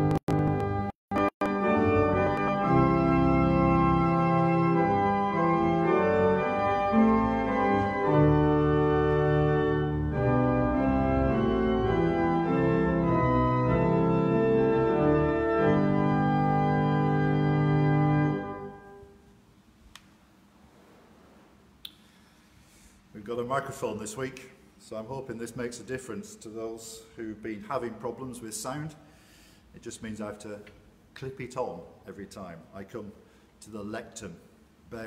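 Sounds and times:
organ playing slow chords: 0.0 - 19.3.

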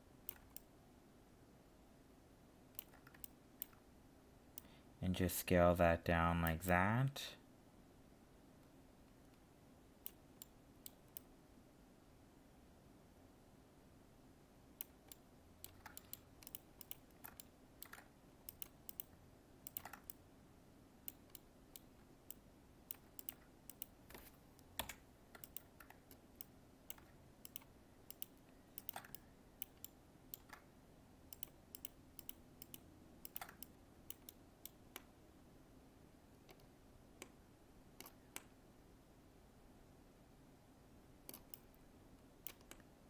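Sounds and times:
faint steady hum: 0.0 - 43.0
mouse and keyboard clicking: 0.2 - 0.7, 2.8 - 3.8, 14.8 - 20.2, 21.1 - 30.6, 31.3 - 35.1, 41.2 - 41.8, 42.4 - 42.9.

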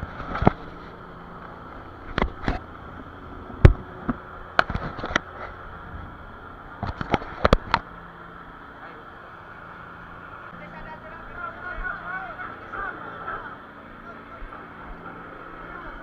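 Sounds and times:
low motor hum: 0.0 - 16.0.

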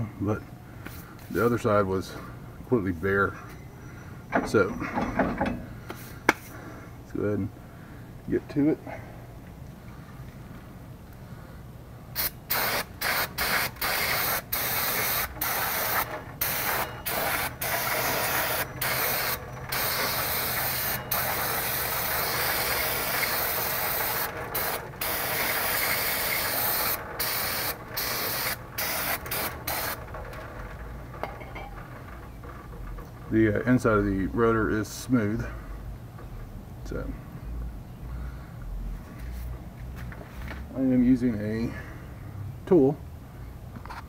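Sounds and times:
aerosol spray can hissing: 12.2 - 30.0.

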